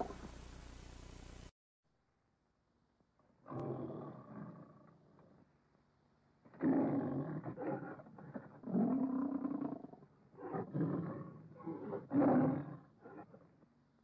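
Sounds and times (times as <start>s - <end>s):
lion roaring: 3.4s - 5.0s, 6.5s - 13.4s.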